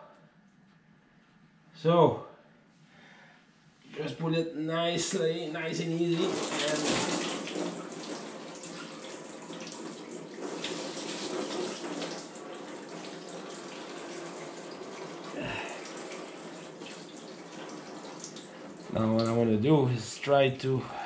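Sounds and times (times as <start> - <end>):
liquid pouring into drain pan: 6.1 - 19.4.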